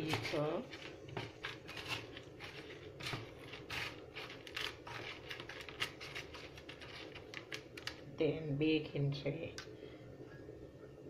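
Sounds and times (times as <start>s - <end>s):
tortilla chips crackling and crunching: 0.0s - 8.1s.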